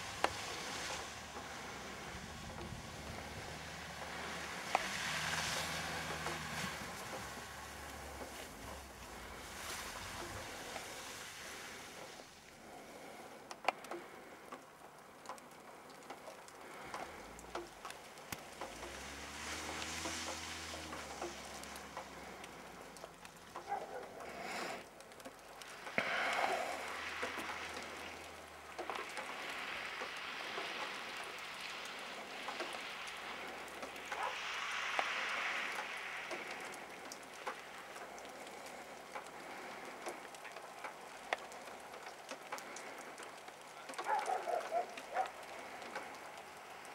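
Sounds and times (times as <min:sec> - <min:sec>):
distant engine revving: 0:00.0 - 0:11.0, 0:17.0 - 0:24.0
steady hiss: 0:00.0 - 0:44.2.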